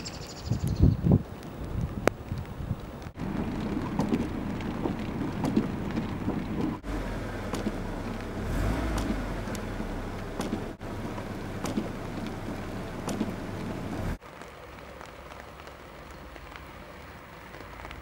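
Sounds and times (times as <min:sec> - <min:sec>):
rain drops pattering: 0:00.9 - 0:18.0
low rumble: 0:03.1 - 0:14.2.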